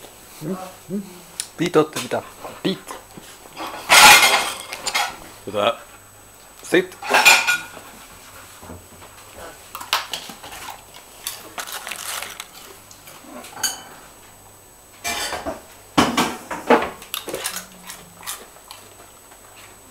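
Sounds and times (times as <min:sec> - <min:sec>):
dog crunching potato chips: 0:09.7 - 0:13.2, 0:17.0 - 0:19.2.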